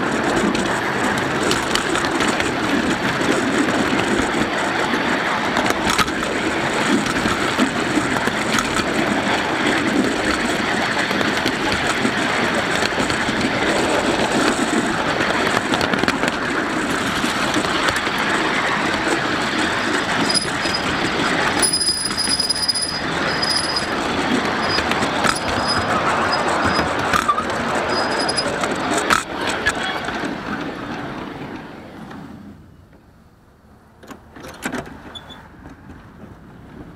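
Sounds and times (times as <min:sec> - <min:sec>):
clicks from rail joints: 0:00.0 - 0:33.1, 0:33.9 - 0:36.9
train wheels rumbling and rattling: 0:00.0 - 0:36.9
thin high squeal: 0:21.6 - 0:23.9.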